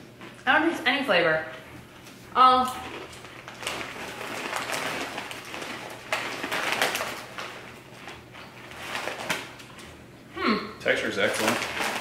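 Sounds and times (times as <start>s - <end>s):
chips being chewed: 2.0s - 10.0s
plastic bag crinkling: 2.8s - 10.0s, 10.9s - 12.0s.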